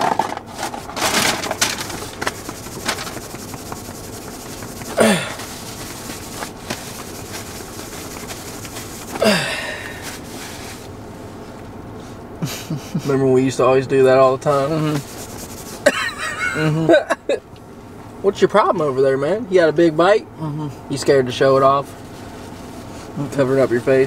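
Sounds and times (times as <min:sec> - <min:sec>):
rustling of food and clothing: 0:00.0 - 0:12.2
hand brushing crumbs off shirt: 0:01.4 - 0:10.9, 0:14.7 - 0:16.6.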